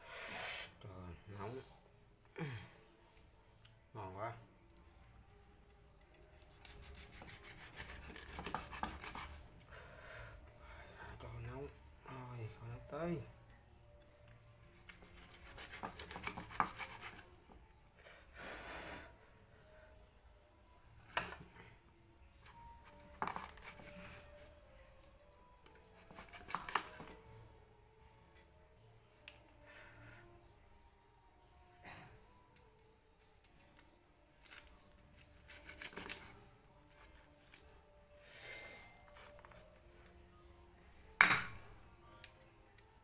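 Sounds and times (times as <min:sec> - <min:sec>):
knife scraping cutting board: 0:06.7 - 0:09.4, 0:15.1 - 0:17.2
knife slicing fried chicken: 0:06.7 - 0:09.4, 0:15.1 - 0:17.2.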